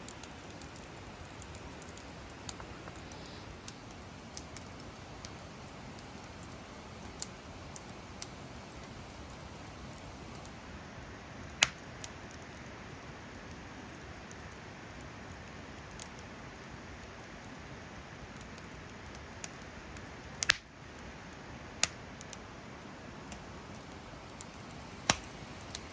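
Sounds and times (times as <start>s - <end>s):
campfire crackling: 0.0s - 25.9s
sharp pops from fire: 0.1s - 10.6s, 11.5s - 12.6s, 18.2s - 21.0s, 21.8s - 22.4s, 23.2s - 25.9s.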